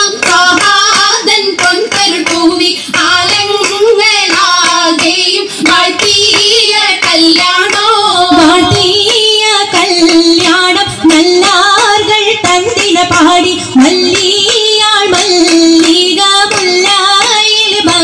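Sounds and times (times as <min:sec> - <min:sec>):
woman singing: 0:00.0 - 0:18.0
dance music beat: 0:08.2 - 0:09.0.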